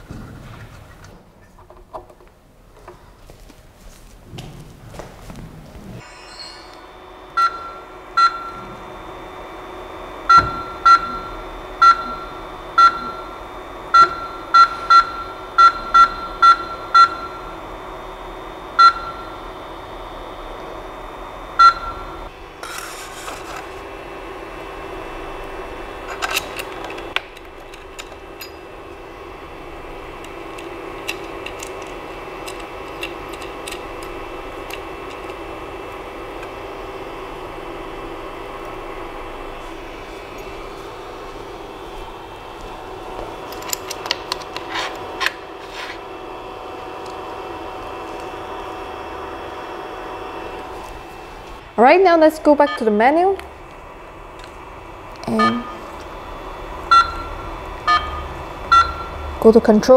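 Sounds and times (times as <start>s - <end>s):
steady hum: 0.0s - 59.9s
buzzer beeps: 7.4s - 8.6s, 10.3s - 17.5s, 18.8s - 19.4s, 21.6s - 22.2s, 52.6s - 53.0s, 55.3s - 55.8s, 56.9s - 59.2s.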